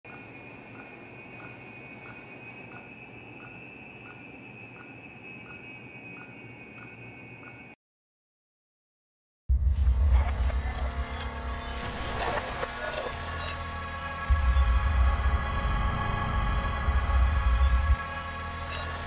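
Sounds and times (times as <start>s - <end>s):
pulse oximeter beeping: 0.1s - 7.8s
steady high whine: 0.1s - 7.8s, 9.5s - 19.0s.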